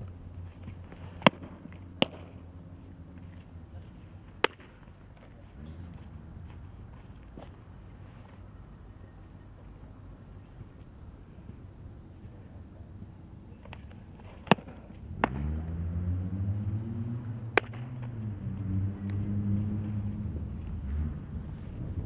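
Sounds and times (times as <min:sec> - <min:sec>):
motor vehicle engine hum: 0:00.0 - 0:22.0
softball popping into leather mitt: 0:00.7 - 0:02.3, 0:04.4 - 0:05.3, 0:13.7 - 0:15.5, 0:17.5 - 0:18.2.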